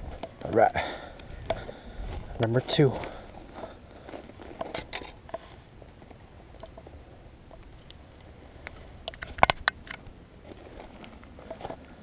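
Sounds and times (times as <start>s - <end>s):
light metallic clinks: 0.0s - 2.9s, 6.6s - 9.3s.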